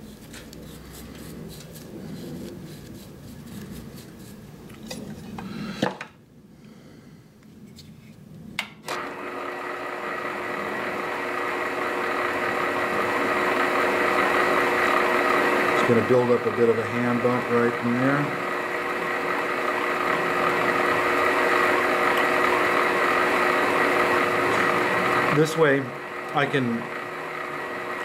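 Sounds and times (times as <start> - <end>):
light brushing and rubbing: 0.0 - 4.6
lathe motor whining: 8.9 - 28.0.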